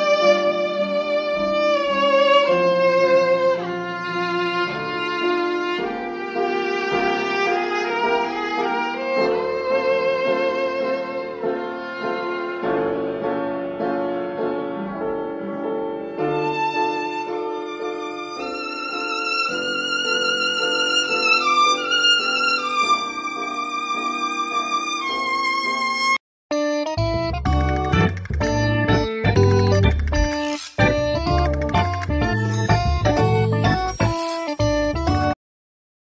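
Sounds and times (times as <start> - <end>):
bowed violin melody: 0.0 - 13.3, 16.0 - 26.2.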